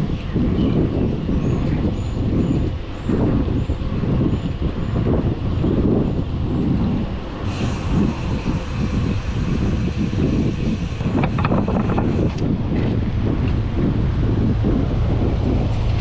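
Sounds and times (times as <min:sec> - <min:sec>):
passing traffic: 0:00.0 - 0:16.0
wind buffeting microphone: 0:00.0 - 0:16.0
steady hiss: 0:07.5 - 0:12.3.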